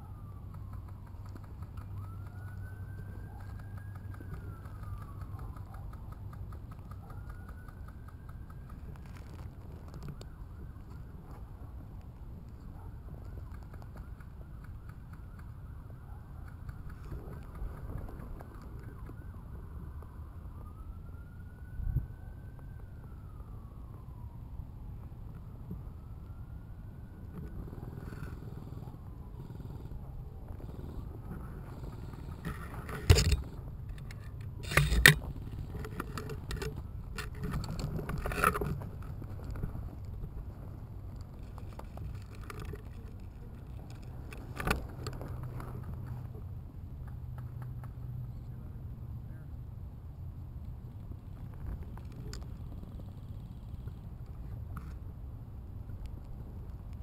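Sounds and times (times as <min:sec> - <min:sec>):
faint siren wailing: 0:00.0 - 0:46.6
wind rumble: 0:00.0 - 0:47.0
camera handling noise: 0:32.4 - 0:39.1
twigs crackling: 0:32.4 - 0:40.2, 0:41.1 - 0:45.7.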